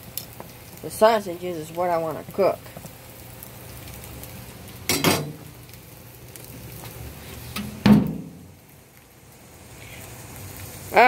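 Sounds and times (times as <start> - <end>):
sausages sizzling on a grill: 0.0 - 11.0
grill lid clanking shut: 4.9 - 5.5, 7.6 - 8.5.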